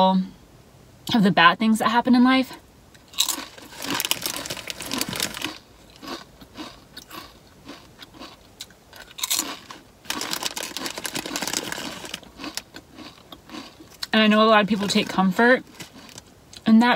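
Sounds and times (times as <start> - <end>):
chips crunching: 3.0 - 16.7
chewing: 3.2 - 14.2.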